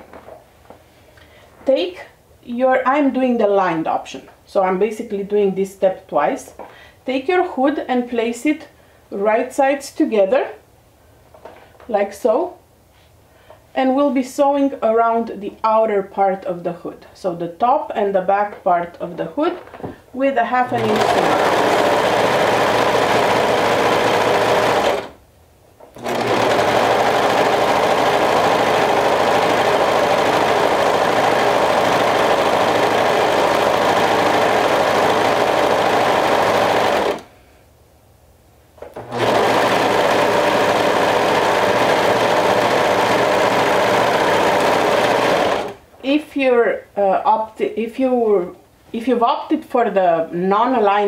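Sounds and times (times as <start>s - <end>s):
serger sewing machine running: 20.6s - 25.2s, 26.0s - 37.3s, 39.0s - 45.8s.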